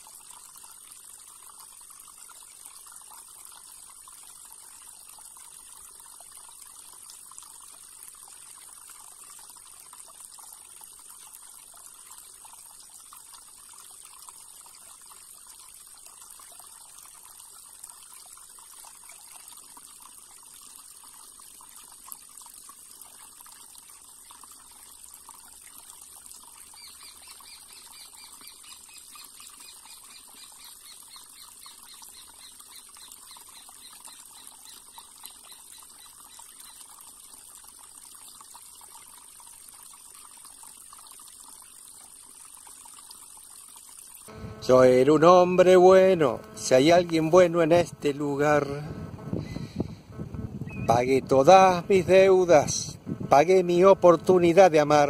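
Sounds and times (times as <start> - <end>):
river water trickling over stones: 0.0 - 50.2, 50.9 - 55.0
high insect buzz: 44.3 - 50.9.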